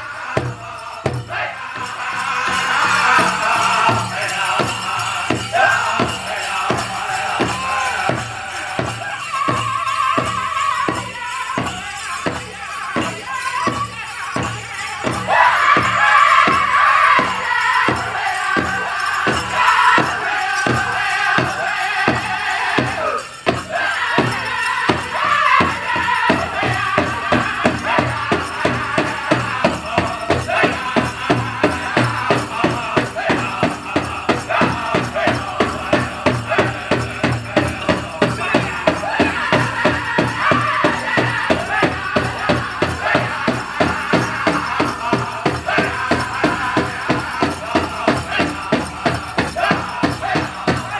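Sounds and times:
singers singing high-pitched: 0:00.0 - 0:50.9
big drum beating: 0:10.2 - 0:50.9.

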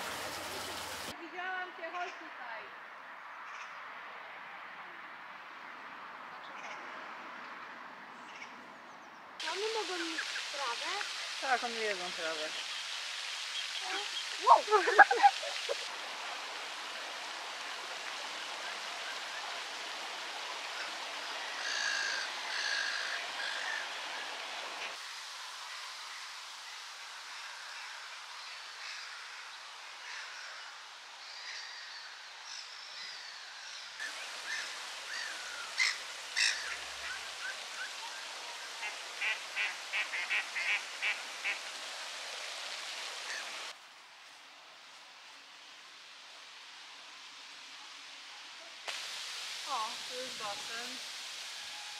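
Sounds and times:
fountain splashing into pond: 0:00.0 - 0:01.2, 0:09.4 - 0:31.4, 0:34.0 - 0:43.8, 0:45.2 - 0:51.9
outdoor hiss: 0:00.0 - 0:03.6, 0:09.0 - 0:51.9.

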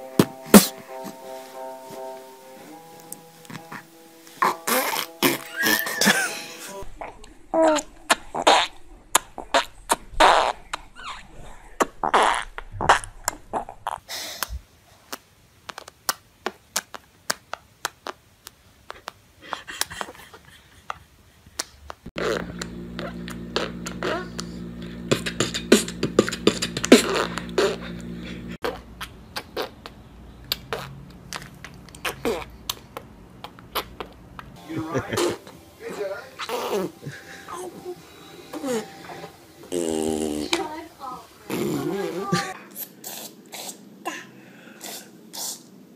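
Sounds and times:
babies blowing raspberries: 0:00.0 - 0:15.9, 0:22.2 - 0:34.2, 0:35.0 - 0:43.9
steady hum: 0:22.2 - 0:28.6, 0:34.3 - 0:42.6.

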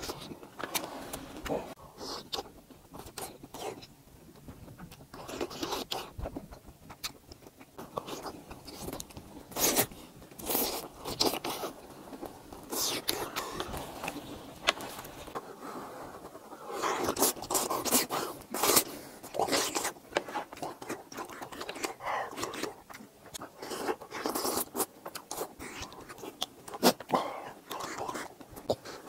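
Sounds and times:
chewing: 0:00.0 - 0:15.5, 0:16.2 - 0:29.0
person slurping cheese: 0:08.0 - 0:11.8.

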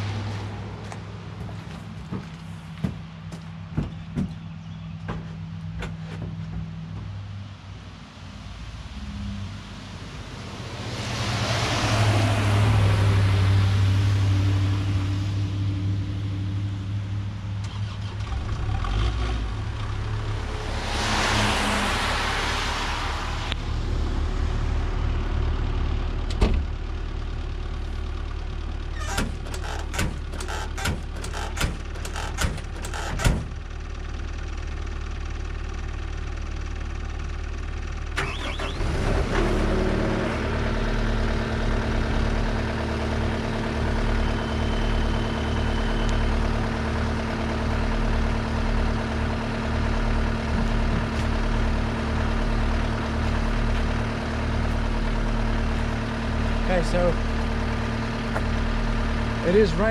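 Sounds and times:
car passing: 0:07.6 - 0:15.7, 0:19.8 - 0:25.4
diesel engine starting and idling: 0:08.9 - 0:59.9
sharp knocks and clicks: 0:29.1 - 0:33.6.

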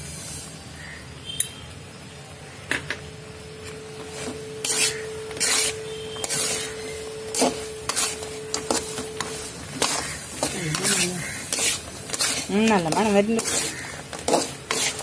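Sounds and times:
faint steady hum: 0:00.0 - 0:14.1
metal spatula scraping wok: 0:04.1 - 0:15.0.

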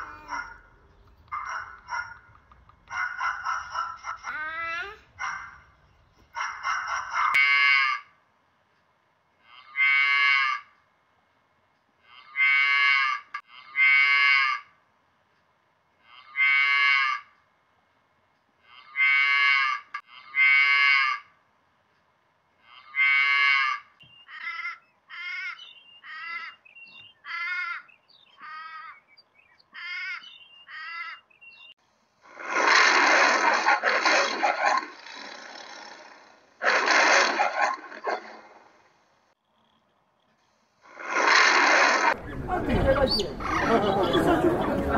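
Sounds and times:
animal calls: 0:00.0 - 0:08.2, 0:09.4 - 0:10.8, 0:12.0 - 0:14.8, 0:16.0 - 0:17.4, 0:18.6 - 0:21.4, 0:22.6 - 0:38.8, 0:40.8 - 0:44.6
loud rough animal call: 0:16.0 - 0:17.3, 0:18.6 - 0:21.4, 0:22.6 - 0:26.6, 0:32.2 - 0:38.8, 0:40.8 - 0:42.3.

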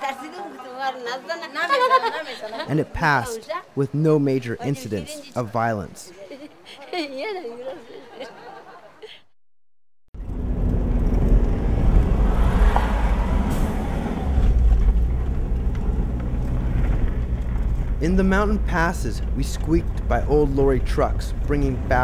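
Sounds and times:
road noise: 0:10.2 - 0:22.0
vehicle engine low rumble: 0:10.2 - 0:22.0.

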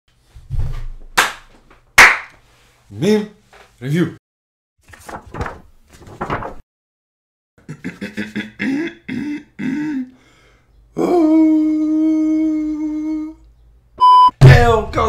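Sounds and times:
man vocalising: 0:07.7 - 0:10.2, 0:10.9 - 0:13.5.

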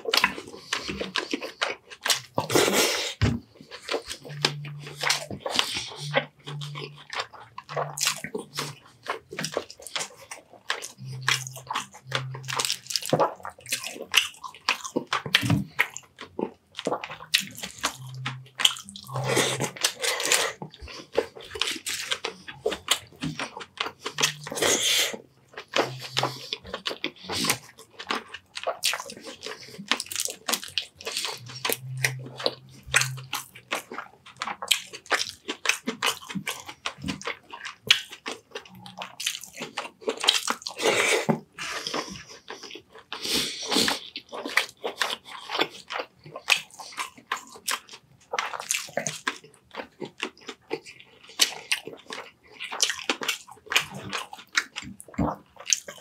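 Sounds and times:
wet chewing and lip smacking: 0:00.0 - 0:56.0
mouth clicks: 0:00.1 - 0:47.8
closed-mouth hums: 0:02.2 - 0:13.8, 0:16.9 - 0:27.8, 0:30.9 - 0:34.6.

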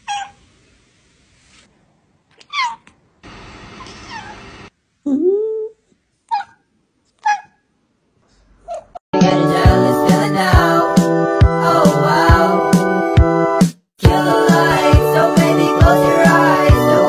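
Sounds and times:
cat meows: 0:02.4 - 0:02.9.

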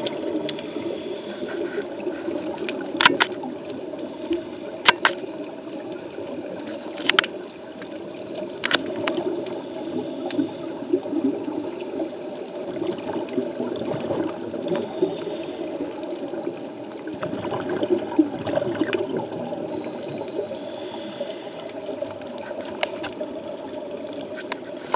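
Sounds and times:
regulator bubbling: 0:00.0 - 0:23.6
muffled underwater noise: 0:00.0 - 0:24.9
sharp clicks: 0:04.2 - 0:05.2.

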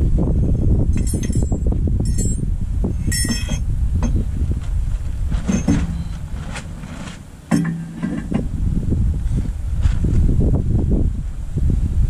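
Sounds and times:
low rumble: 0:00.0 - 0:12.0
steel parts clinking: 0:00.9 - 0:04.3, 0:05.3 - 0:08.4
faint metal knocks: 0:05.3 - 0:08.5.

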